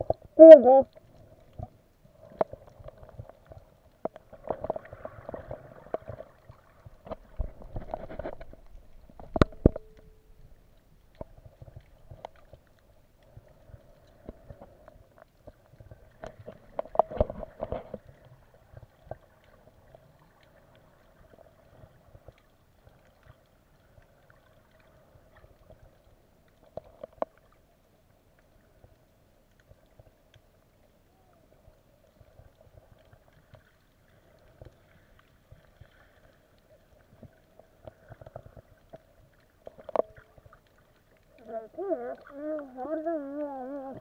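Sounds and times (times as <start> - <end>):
faint underwater hum: 0.0 - 44.0.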